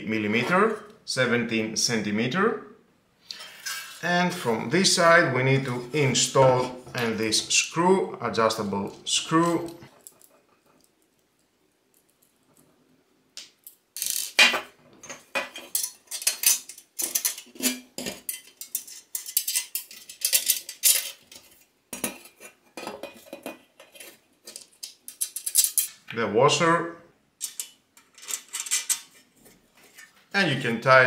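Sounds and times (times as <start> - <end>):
metal parts clinking and clattering: 14.0 - 26.0, 27.4 - 29.1.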